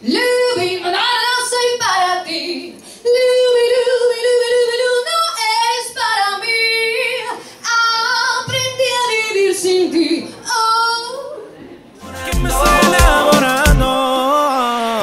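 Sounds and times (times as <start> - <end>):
woman singing into microphone: 0.0 - 11.2.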